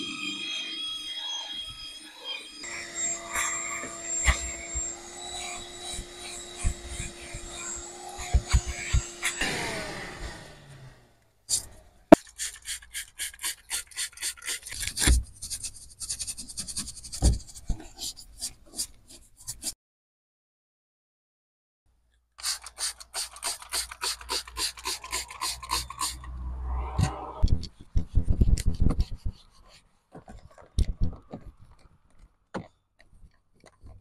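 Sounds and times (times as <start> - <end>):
brush scrubbing plastic and carpet: 5.4 - 9.5, 11.5 - 19.8, 22.4 - 26.4.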